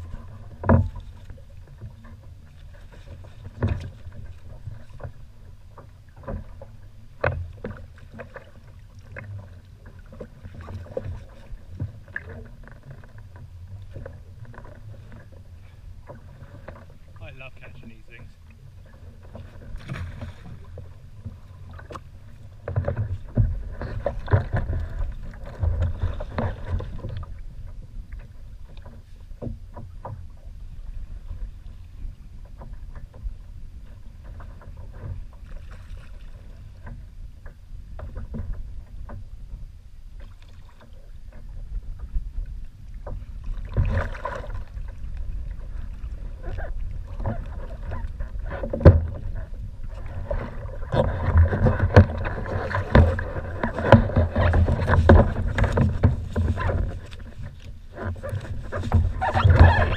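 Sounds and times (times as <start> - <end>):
choppy water around kayak: 0.0 - 59.9
knocks and rustling on kayak: 0.0 - 59.9
wind on microphone: 41.0 - 59.9.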